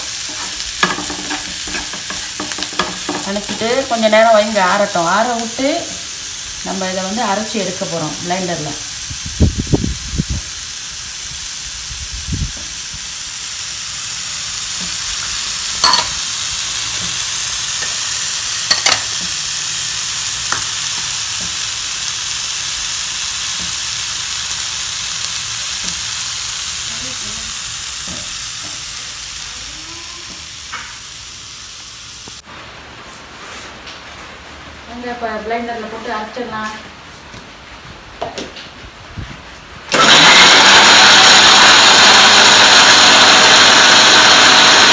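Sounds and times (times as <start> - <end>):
food sizzling in a frying pan: 0.0 - 32.5, 39.9 - 44.9.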